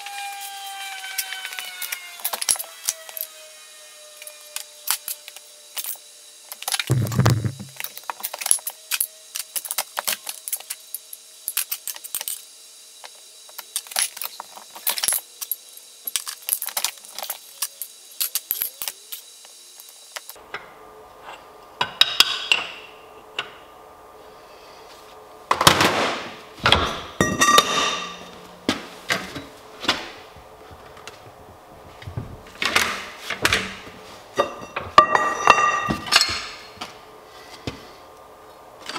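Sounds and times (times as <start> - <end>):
heavy thump: 6.9 - 7.8.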